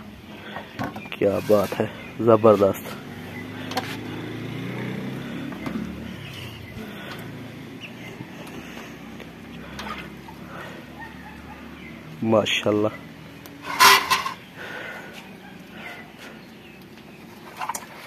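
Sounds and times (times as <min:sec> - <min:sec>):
low engine hum: 0:02.9 - 0:11.9.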